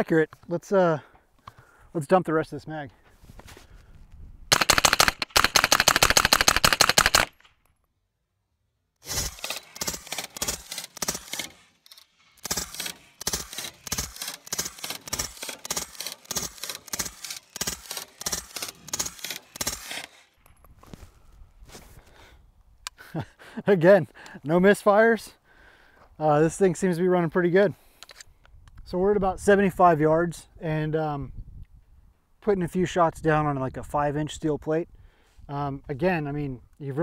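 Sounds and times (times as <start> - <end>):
suppressed gunshots: 4.5 - 7.6.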